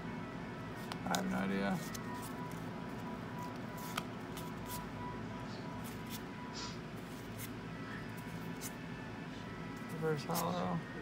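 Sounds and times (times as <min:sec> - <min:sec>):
low room hum: 0:00.0 - 0:11.0
cards clicking and brushing: 0:00.8 - 0:02.6, 0:03.4 - 0:04.8.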